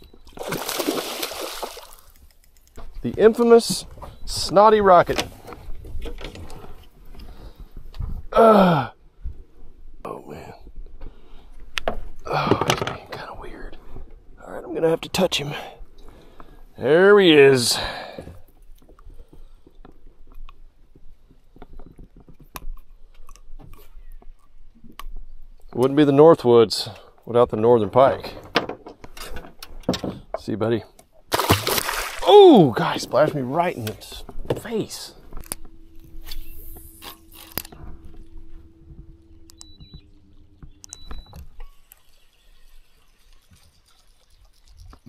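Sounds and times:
fishing reel whirring and clicking: 0:35.4 - 0:37.8, 0:40.7 - 0:45.0.

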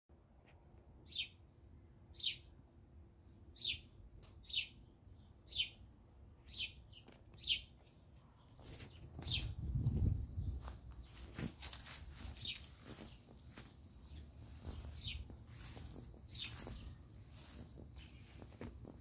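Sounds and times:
songbird calling: 0:14.0 - 0:18.5.

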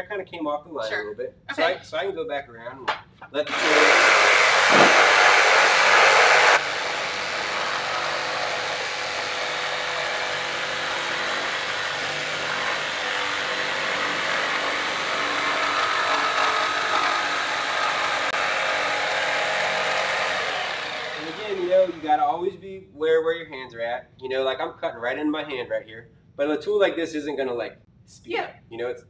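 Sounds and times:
jigsaw cutting wood: 0:03.5 - 0:22.2.

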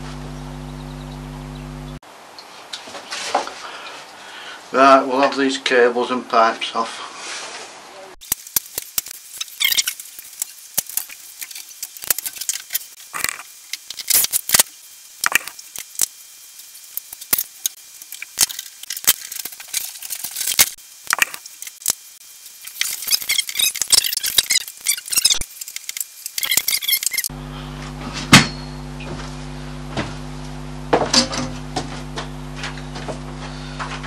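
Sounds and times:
cables crackling: 0:08.2 - 0:27.3.

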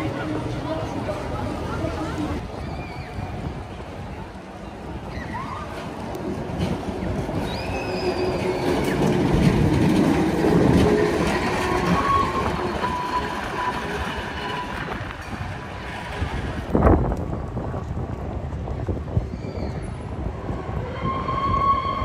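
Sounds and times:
tram rolling on rails: 0:00.0 - 0:22.0
high wheel squeals: 0:07.3 - 0:15.5, 0:19.3 - 0:22.0.

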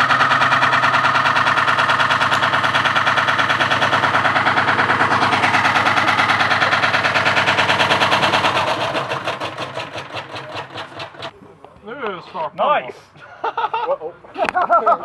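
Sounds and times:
washing machine motor hum: 0:00.0 - 0:10.0
washing machine drum rattling: 0:00.0 - 0:11.3.

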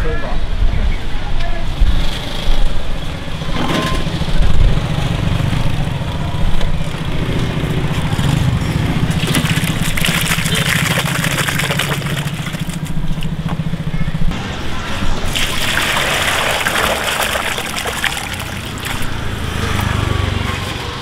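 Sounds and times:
stew pouring into steel bowl: 0:15.3 - 0:19.1.

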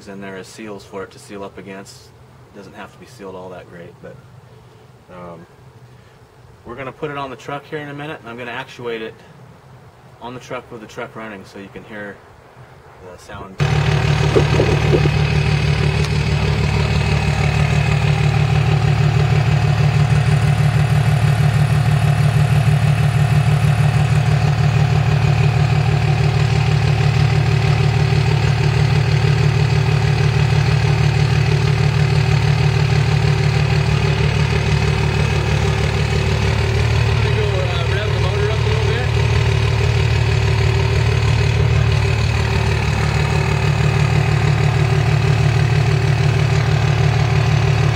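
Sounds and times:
diesel engine exhaust idling: 0:13.6 - 0:47.9.

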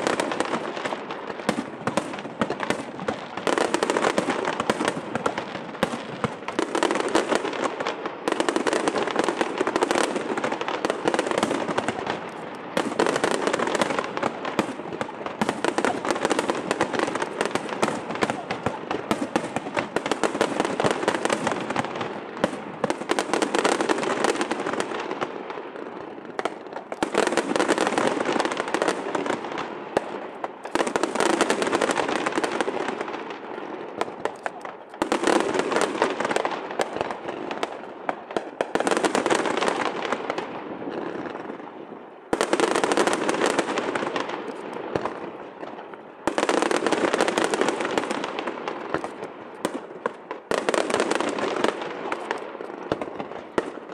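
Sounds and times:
fireworks bursting: 0:00.0 - 0:53.9
fireworks crackling: 0:00.0 - 0:53.9.

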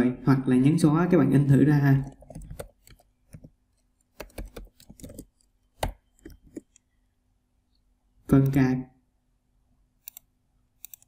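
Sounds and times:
keyboard typing: 0:02.0 - 0:06.9, 0:10.0 - 0:11.0.

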